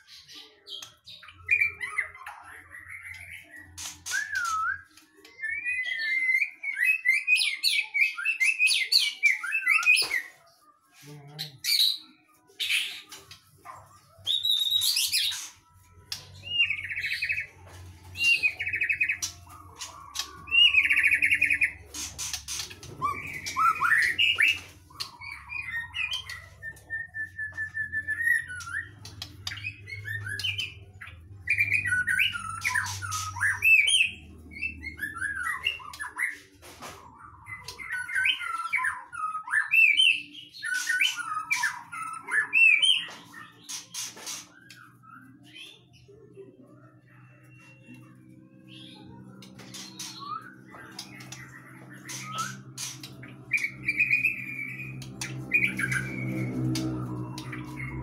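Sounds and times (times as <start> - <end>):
songbird singing whistled phrases: 0.8 - 10.4
steady bird trill: 11.0 - 58.0.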